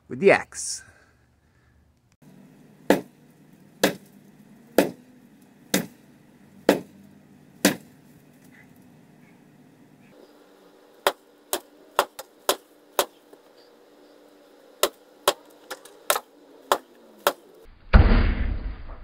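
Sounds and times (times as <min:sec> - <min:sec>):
axe chopping into tree: 0:02.9 - 0:03.1, 0:03.8 - 0:04.1, 0:04.8 - 0:05.0, 0:05.7 - 0:06.0, 0:06.7 - 0:06.9, 0:07.6 - 0:07.9.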